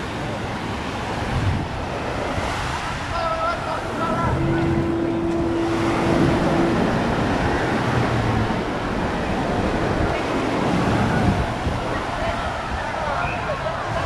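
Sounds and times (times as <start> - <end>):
small waves washing on sand: 0.0 - 14.0
wind rumbling on microphone: 0.0 - 14.0
steady humming tone: 3.1 - 11.8.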